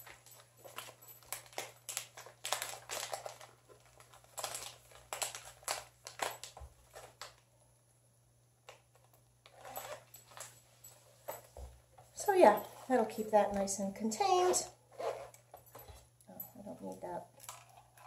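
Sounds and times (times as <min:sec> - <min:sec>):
paper packets rustling and crinkling: 0:00.0 - 0:07.4.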